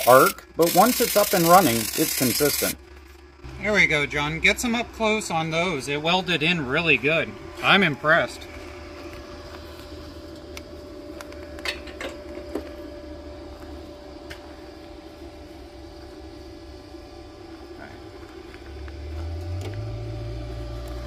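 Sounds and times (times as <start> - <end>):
mechanical hum with whine: 0.0 - 21.0.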